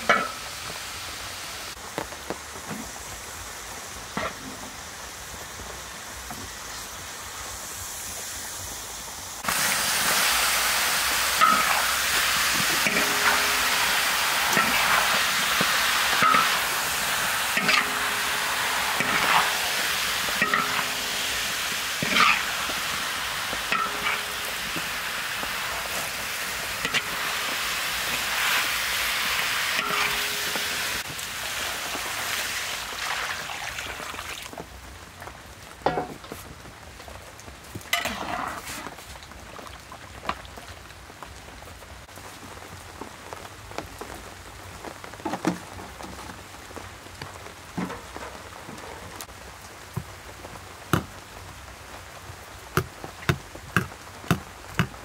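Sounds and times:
food sizzling in a wok: 0.0 - 34.6, 37.8 - 39.0
metal spatula scraping wok: 12.6 - 22.9, 23.7 - 25.0, 26.8 - 31.0, 38.0 - 38.8.

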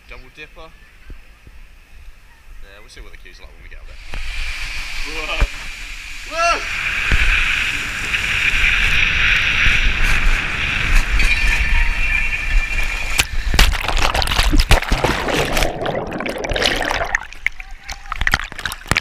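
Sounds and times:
splashing into pool: 13.6 - 19.0
water rushing down slide tube: 13.8 - 19.0.

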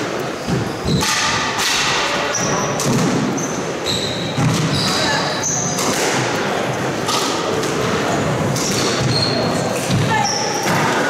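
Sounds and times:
shoes squeaking on wooden floor: 0.3 - 1.0, 2.3 - 5.8, 8.1 - 10.9
squash ball struck by rackets: 0.5 - 3.4, 4.3 - 11.0.

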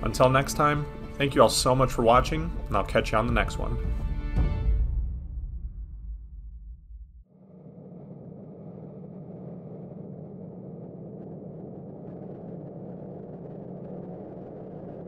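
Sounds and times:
wind blowing over microphone: 7.3 - 15.0.

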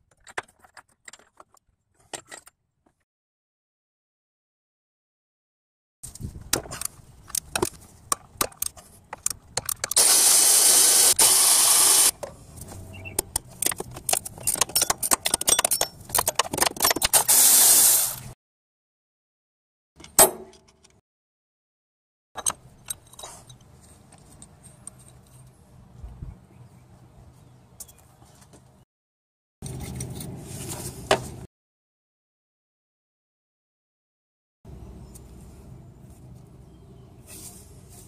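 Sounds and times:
loud hissing bursts: 17.3 - 18.3.

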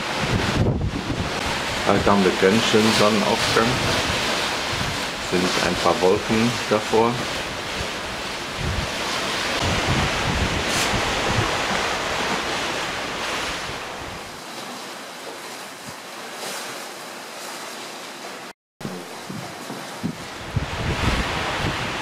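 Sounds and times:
wind buffeting microphone: 0.0 - 2.7, 3.5 - 5.8, 7.2 - 14.3, 18.8 - 22.0
sea water rushing: 0.0 - 22.0.

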